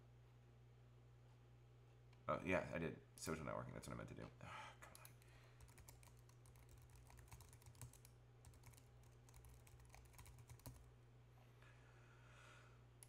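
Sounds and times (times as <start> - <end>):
faint keyboard typing: 4.8 - 10.9.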